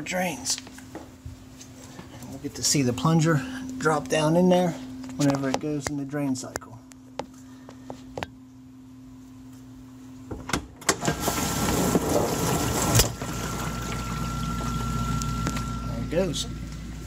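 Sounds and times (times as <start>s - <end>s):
dishwasher low hum: 9.2s - 17.0s
drain pump water rushing: 11.0s - 17.0s
high whine: 13.4s - 17.0s.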